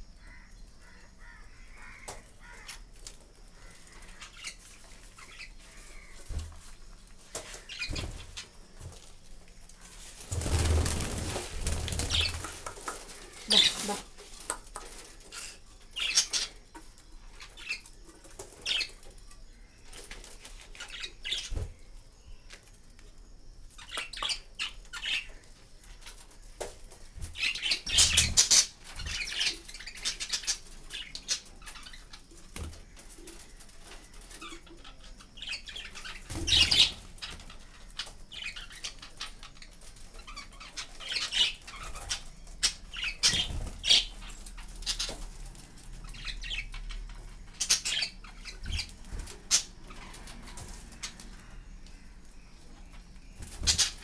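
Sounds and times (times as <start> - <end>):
budgerigars fluttering wings: 10.1 - 14.0, 42.9 - 45.4.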